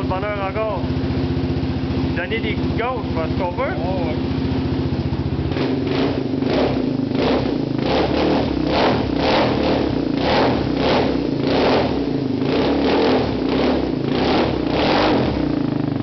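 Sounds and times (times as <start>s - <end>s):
atv engine revving: 0.0s - 16.0s.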